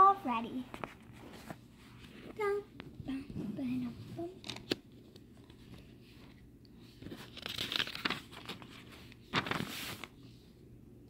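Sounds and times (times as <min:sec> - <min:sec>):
rustling crinkling noise: 0:00.6 - 0:10.2.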